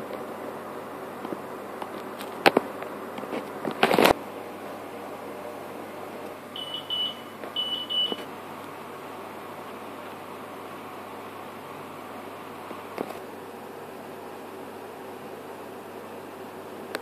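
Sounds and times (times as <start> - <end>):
high electronic beeping: 6.6 - 8.2.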